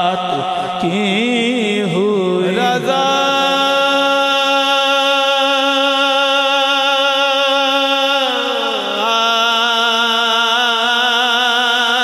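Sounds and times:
person singing long held note: 2.2 - 10.4.

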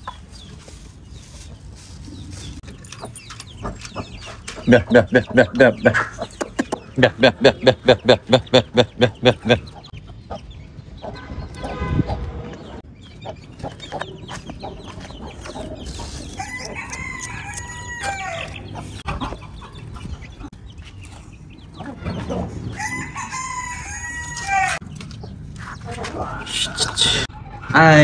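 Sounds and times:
hens clucking: 0.0 - 28.0
rooster crowing: 16.4 - 18.6, 22.8 - 24.8.

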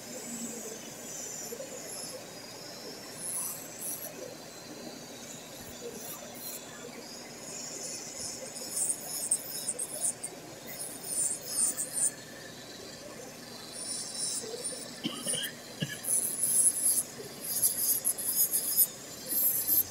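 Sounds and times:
drill bit grinding on nail: 7.5 - 12.2, 13.6 - 19.9.

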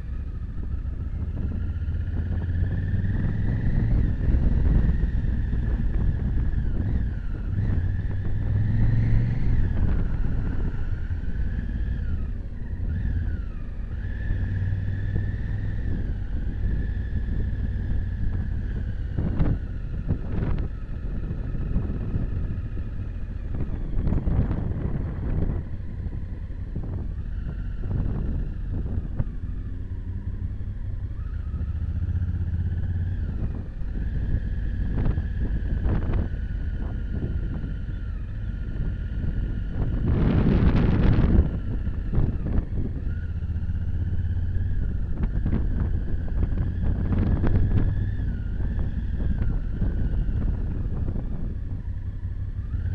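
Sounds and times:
motorcycle engine revving: 0.0 - 52.9.

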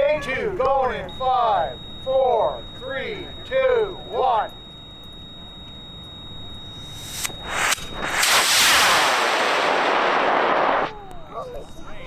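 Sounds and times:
rocket motor roaring: 6.8 - 11.1
sharp cracks: 7.0 - 11.0.

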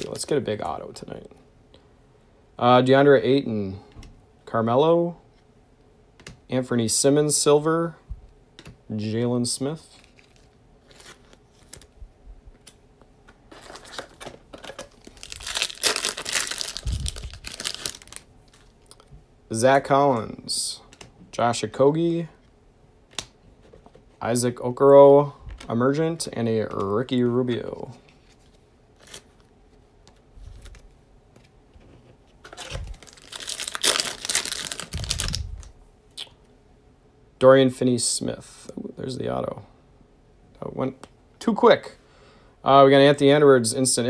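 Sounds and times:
foil wrapper tearing and crinkling: 13.6 - 18.7, 32.5 - 35.7.

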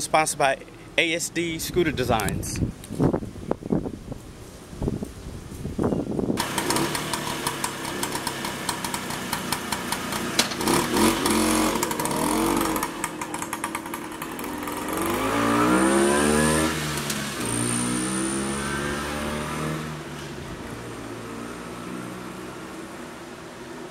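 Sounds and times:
scooter engine popping and revving: 6.4 - 21.7.

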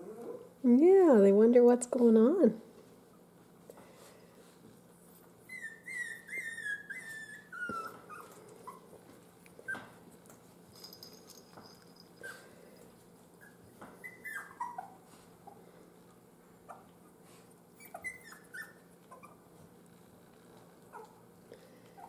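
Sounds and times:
puppies whimpering: 5.0 - 9.0, 13.4 - 15.6, 16.7 - 19.6.

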